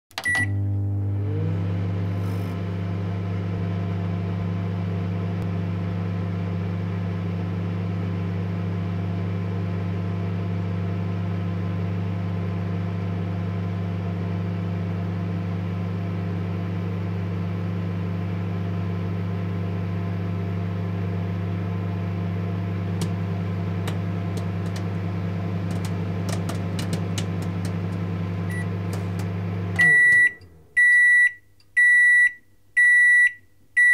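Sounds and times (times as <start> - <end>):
microwave oven humming: 0.1 - 33.9
popcorn popping: 22.8 - 30.2.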